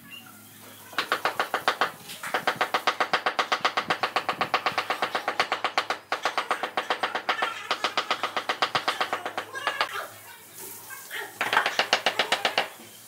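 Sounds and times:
fast tapping on ceramic tile: 0.9s - 10.0s, 11.4s - 12.8s.

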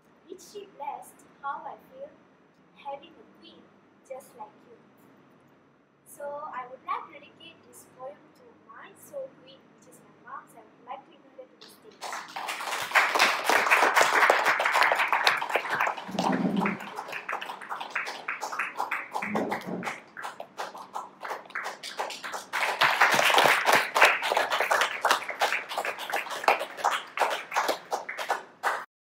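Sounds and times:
audience applauding: 12.0s - 28.9s.

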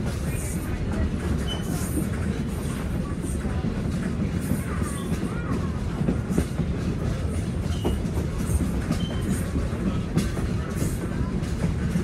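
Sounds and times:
train wheels rumbling on rails: 0.0s - 12.0s
faint squeaks: 1.4s - 2.0s, 8.8s - 9.6s.

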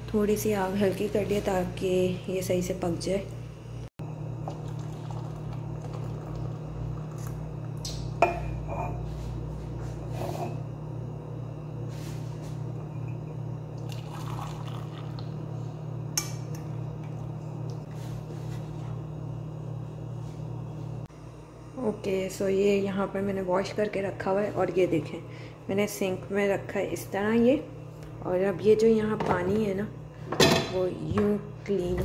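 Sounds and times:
steady low hum: 0.0s - 32.0s
tea pouring through strainer: 4.4s - 7.2s, 13.8s - 15.3s.

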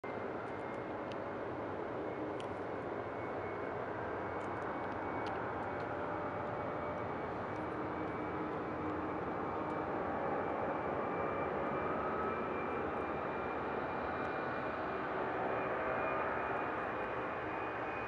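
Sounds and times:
distant jet engine roar: 0.1s - 18.0s
jet engine whine rising: 0.1s - 18.0s.

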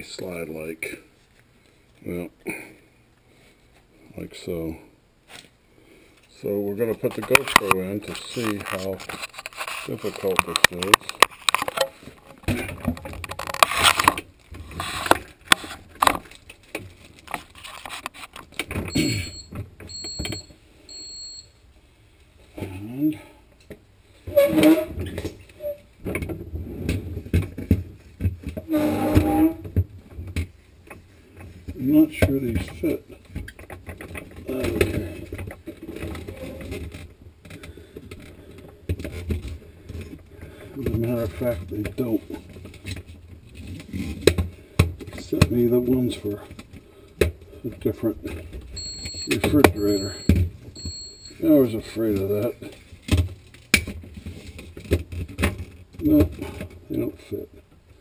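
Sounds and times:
short high beeps: 18.9s - 21.5s, 48.8s - 51.4s.

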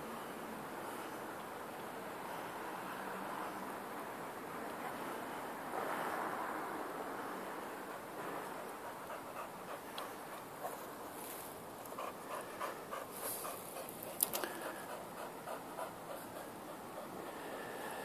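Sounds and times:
dog panting: 7.8s - 18.0s.

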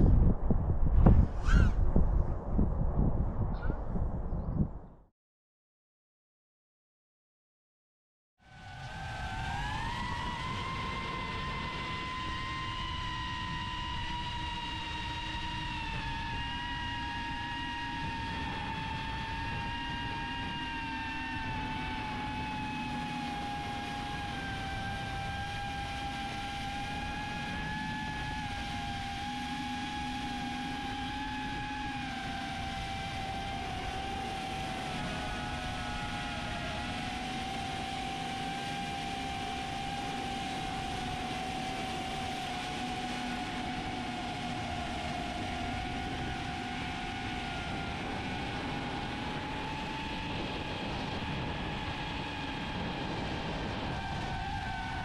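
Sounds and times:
rush of air: 0.0s - 4.5s
drone motors whining: 8.5s - 55.0s.

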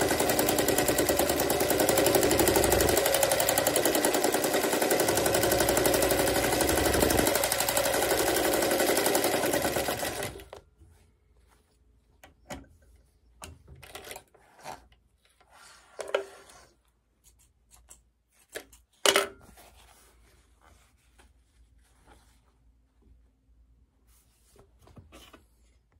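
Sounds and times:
darning machine stitching: 0.0s - 10.6s.

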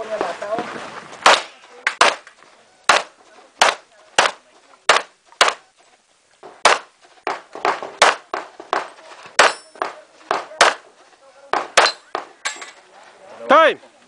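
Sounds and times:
handgun shots: 1.2s - 2.2s, 2.9s - 5.6s, 6.6s - 6.9s.

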